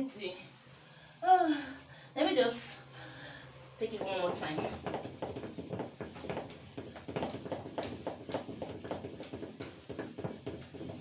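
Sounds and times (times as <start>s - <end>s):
wooden spoon beating batter in bowl: 3.8s - 11.0s.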